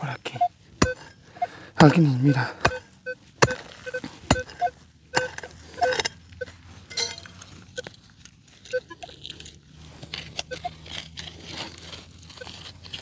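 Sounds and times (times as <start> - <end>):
metal detector beeping: 0.0 - 7.2, 8.7 - 9.1, 10.4 - 10.8, 12.4 - 12.6.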